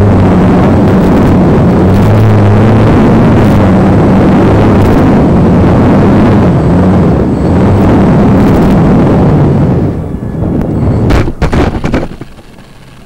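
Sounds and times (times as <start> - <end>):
wheels rumbling over dirt: 10.9 - 13.0.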